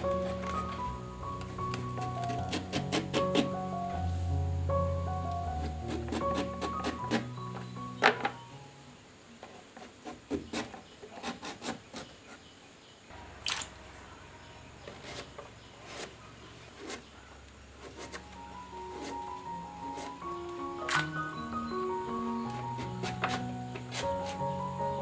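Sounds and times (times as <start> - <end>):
knife scraping breadfruit: 2.0 - 3.6, 5.6 - 7.4, 9.8 - 12.4, 14.9 - 17.2, 17.8 - 18.2, 18.8 - 19.3.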